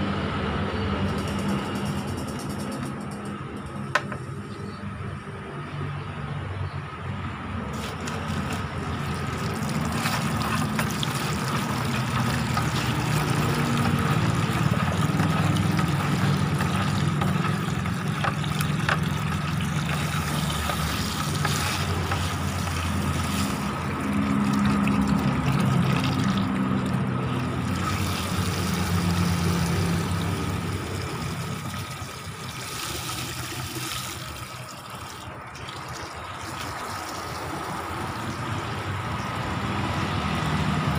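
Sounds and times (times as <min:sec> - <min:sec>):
hose water splashing into bucket: 0:07.7 - 0:40.9
hand stirring water: 0:07.8 - 0:38.0.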